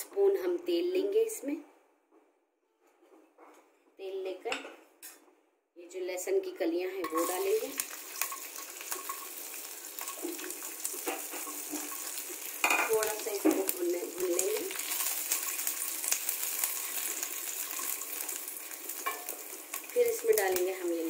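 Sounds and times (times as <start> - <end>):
person speaking: 5.8 - 7.8
metal spatula scraping wok: 7.0 - 19.8
garlic sizzling in oil: 7.0 - 21.0.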